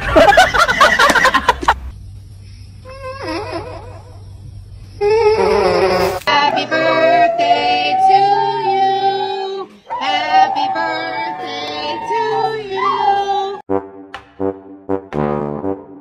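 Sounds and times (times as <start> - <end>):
dog howling: 6.3 - 13.6.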